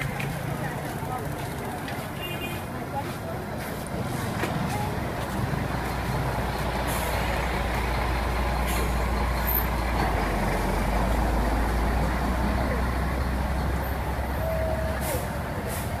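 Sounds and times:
road noise: 0.0 - 16.0
vehicle engine idling: 4.8 - 16.0.

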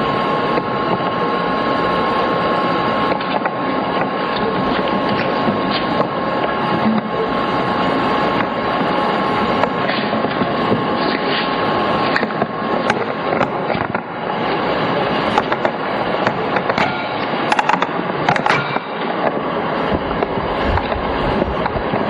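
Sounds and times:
steady rushing noise: 7.8 - 22.0.

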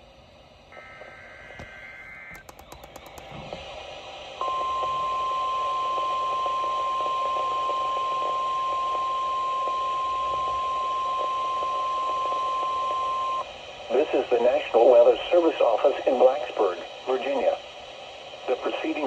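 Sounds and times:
radio hiss: 0.0 - 19.0
steady alarm tone: 4.4 - 19.0.

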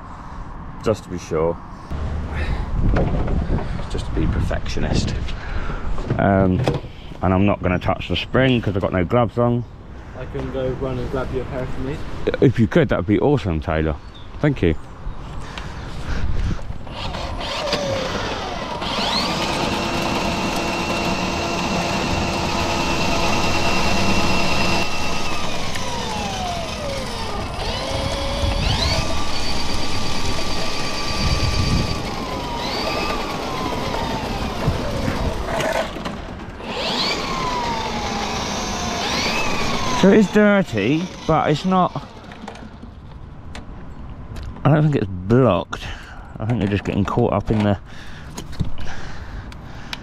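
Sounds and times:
drain snake motor whine: 16.9 - 35.6, 36.6 - 42.4.

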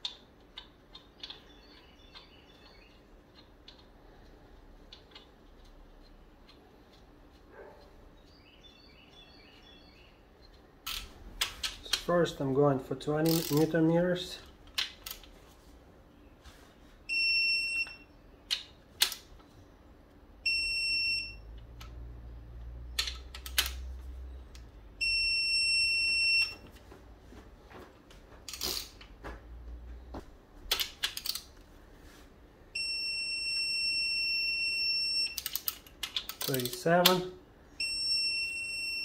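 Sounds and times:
ratchet clicks: 13.2 - 13.7, 35.3 - 37.2
torque wrench beeping: 20.5 - 21.4, 25.0 - 26.6, 37.8 - 39.0.

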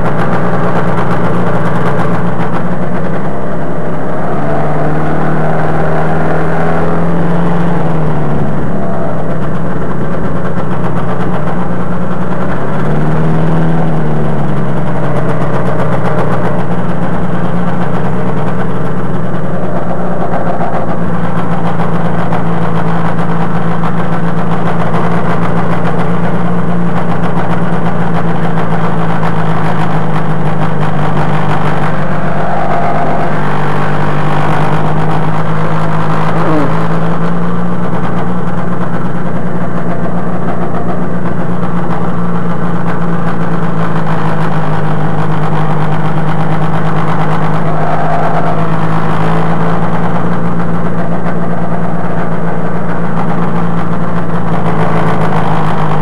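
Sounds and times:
two-stroke engine running steady: 0.0 - 56.0.

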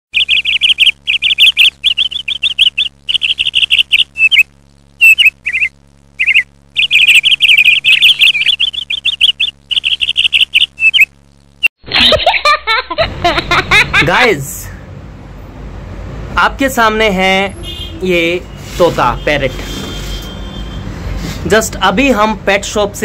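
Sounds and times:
budgerigar chirping: 0.2 - 11.1.

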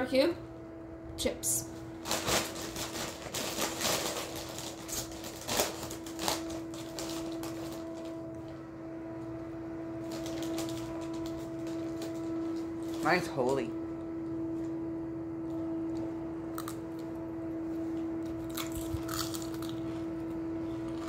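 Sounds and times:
steady hum: 0.0 - 21.0
chip bag crinkling: 2.0 - 8.6, 10.0 - 13.7, 18.3 - 19.9.

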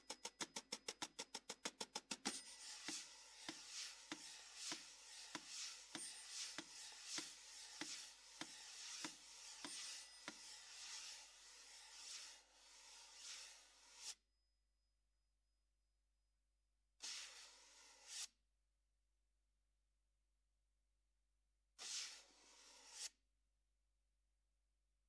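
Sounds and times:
brush strokes swishing: 2.5 - 14.2, 17.0 - 18.3, 21.8 - 23.2.

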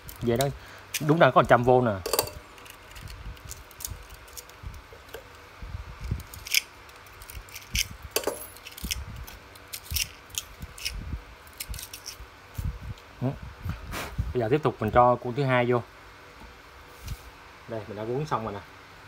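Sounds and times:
rustles of wire and metal: 0.0 - 13.0.

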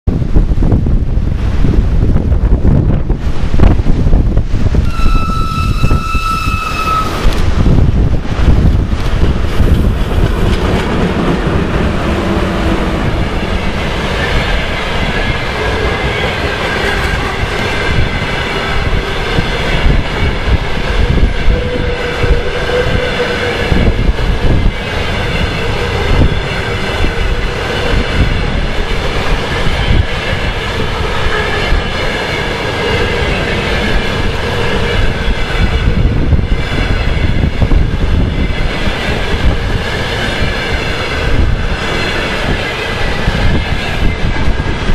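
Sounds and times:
passenger train rolling past: 0.1 - 44.9
thin wheel squeal: 4.8 - 7.4.

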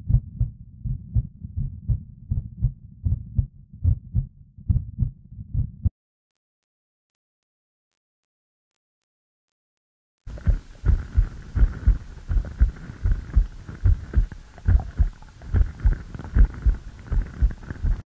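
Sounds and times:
heartbeat thumps: 0.0 - 5.9, 10.3 - 18.0.

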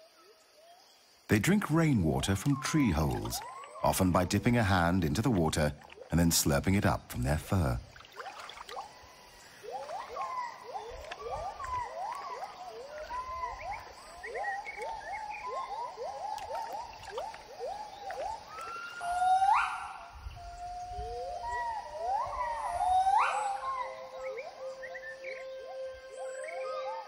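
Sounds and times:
gibbons whooping calls: 8.9 - 27.0.

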